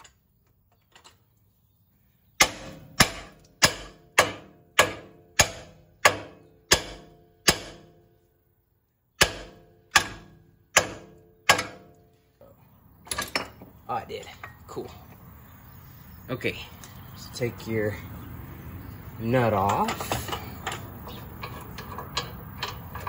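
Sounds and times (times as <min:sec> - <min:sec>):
hammer striking steel: 0:02.4 - 0:08.0, 0:09.2 - 0:11.9.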